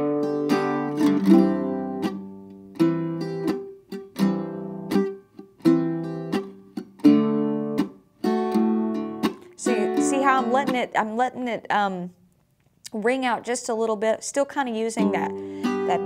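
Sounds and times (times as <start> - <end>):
mandolin strumming chords: 0.0 - 11.8, 14.9 - 16.0.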